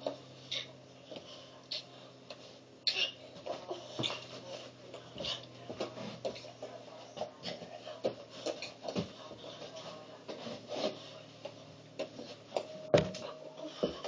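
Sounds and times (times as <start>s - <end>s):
feet thumping and shuffling on floor: 3.3s - 14.0s.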